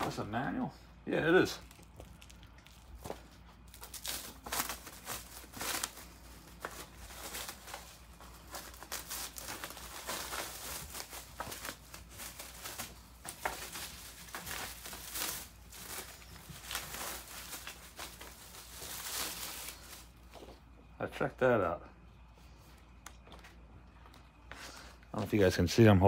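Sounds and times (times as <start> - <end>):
plastic packaging crinkling: 1.5 - 20.6.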